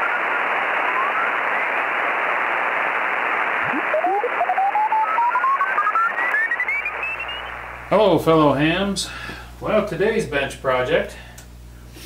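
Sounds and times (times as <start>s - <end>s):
radio whistles gliding up: 0.0s - 7.8s
radio receiver hiss: 0.0s - 8.0s.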